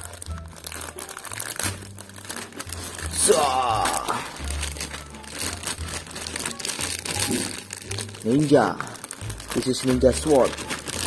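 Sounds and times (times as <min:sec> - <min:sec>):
background music: 0:00.0 - 0:11.0
plastic bag crinkling: 0:00.0 - 0:11.0.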